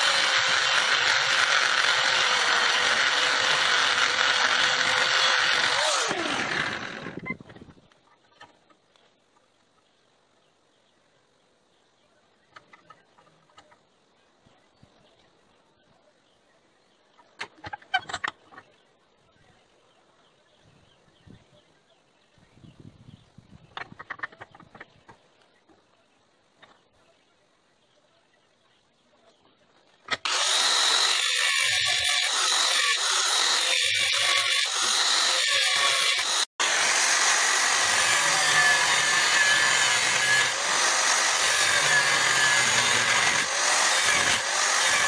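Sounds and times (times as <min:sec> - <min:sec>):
angle grinder cutting steel: 0:00.0 - 0:07.2, 0:30.1 - 0:45.0.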